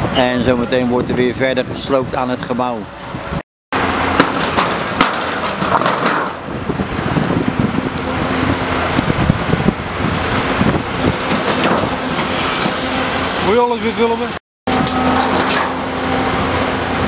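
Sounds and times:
excavator engine humming: 3.8s - 17.0s
scraping and clattering metal: 4.2s - 6.5s, 11.0s - 12.7s, 15.1s - 15.9s.

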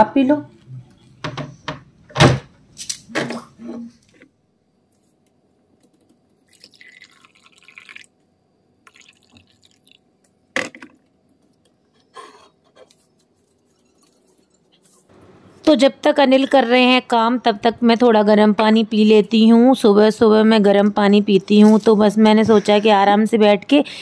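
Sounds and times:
hot water pouring into cup: 6.4s - 8.2s, 8.8s - 10.1s.

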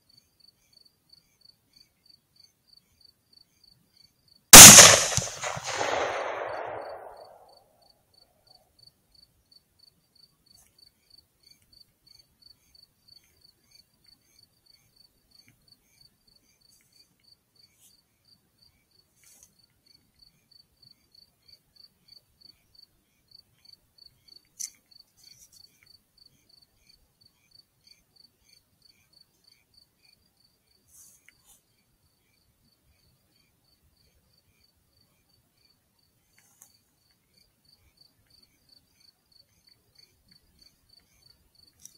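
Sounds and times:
cricket chirping: 0.0s - 41.9s
sharp click: 4.6s - 7.3s
rifle shot echo: 4.6s - 7.5s.

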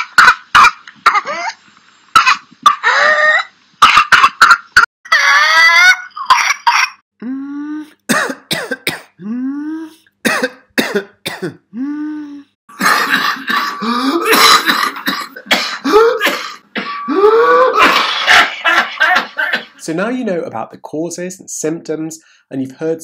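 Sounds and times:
person coughing: 3.8s - 4.6s, 8.1s - 9.3s, 10.2s - 11.9s, 12.7s - 19.8s.

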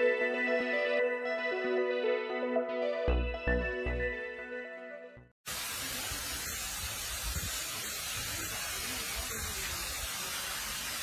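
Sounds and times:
outdoor hiss: 5.5s - 11.0s.

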